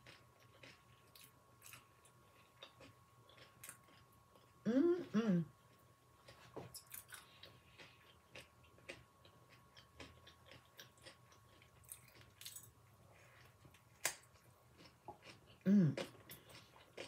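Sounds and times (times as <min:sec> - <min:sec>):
crunchy chewing: 0:00.0 - 0:04.6, 0:05.7 - 0:17.0
short voice hum: 0:04.6 - 0:05.5.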